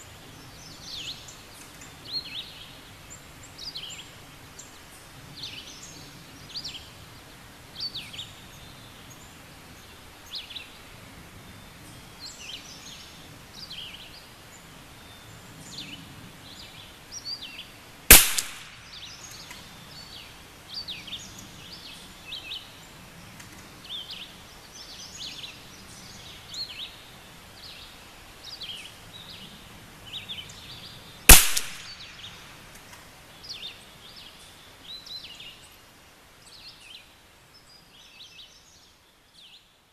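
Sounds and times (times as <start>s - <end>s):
birds chirping: 0.0s - 39.8s
rifle shot: 18.1s - 19.0s, 31.3s - 32.4s.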